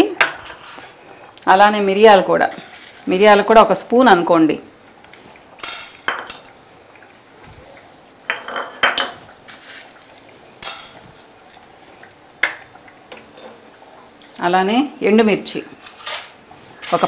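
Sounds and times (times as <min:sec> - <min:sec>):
metal spoon clinking: 0:10.6 - 0:11.6.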